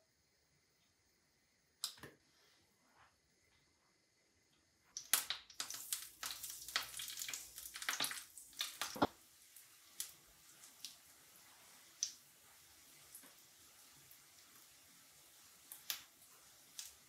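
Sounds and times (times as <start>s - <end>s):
batter frying in oil: 4.8s - 17.0s.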